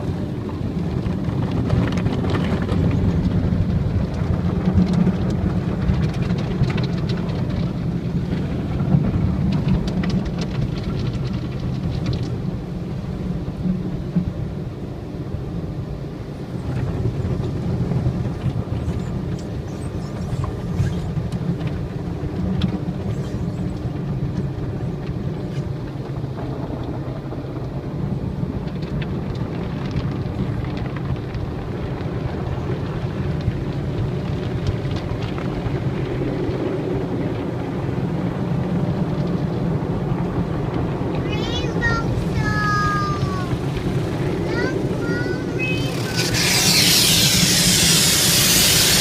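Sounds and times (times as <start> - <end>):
car wash low rumble: 0.0 - 49.0
water splashing on windshield: 0.0 - 49.0
brushes scrubbing glass: 45.2 - 49.0.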